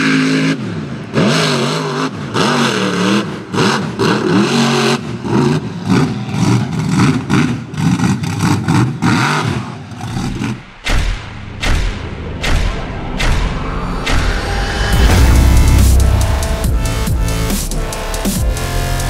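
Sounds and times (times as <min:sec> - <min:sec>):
supercharged engine revving: 0:11.4 - 0:19.0.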